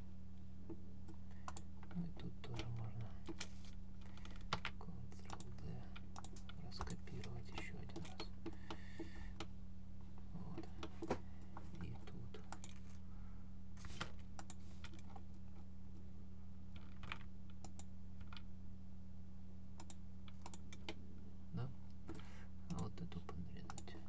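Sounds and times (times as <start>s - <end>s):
low electrical hum: 0.0s - 24.0s
keyboard and mouse clicks: 1.1s - 9.5s, 10.5s - 12.8s, 13.9s - 15.2s, 19.8s - 21.0s, 22.0s - 24.0s.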